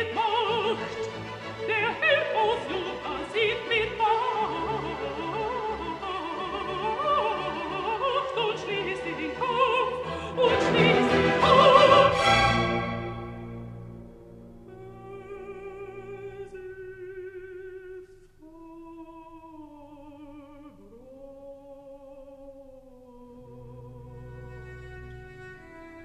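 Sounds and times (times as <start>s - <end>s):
operatic singing: 0.0s - 14.0s, 14.6s - 26.0s
orchestral accompaniment: 0.0s - 16.3s, 23.6s - 26.0s.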